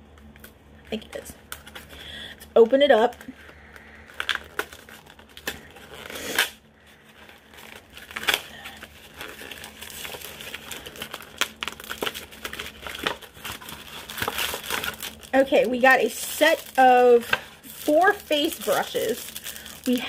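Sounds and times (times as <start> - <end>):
packaging crinkling and rustling: 0.0 - 20.0.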